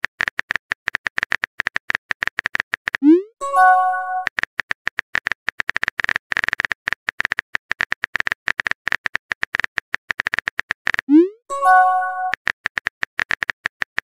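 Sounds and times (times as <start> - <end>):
phone keyboard typing clicks: 3.6 - 14.0.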